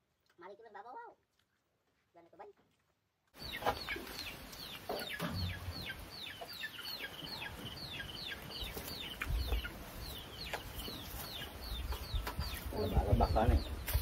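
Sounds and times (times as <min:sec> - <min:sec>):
chicks peeping: 0:03.4 - 0:14.0.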